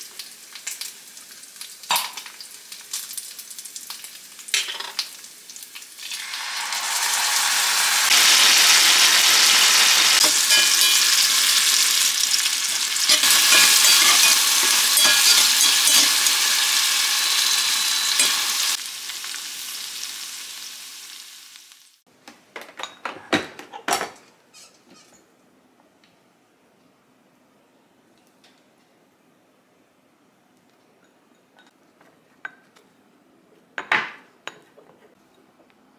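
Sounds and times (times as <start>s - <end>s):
meat sizzling in a skillet: 0.0s - 22.0s
metal tongs turning meat: 8.2s - 18.8s.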